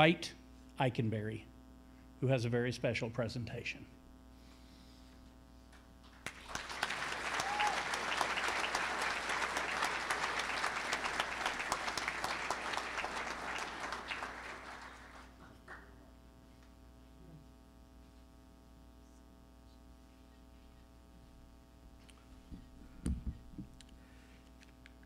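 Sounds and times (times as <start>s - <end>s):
audience applauding: 6.2s - 16.0s.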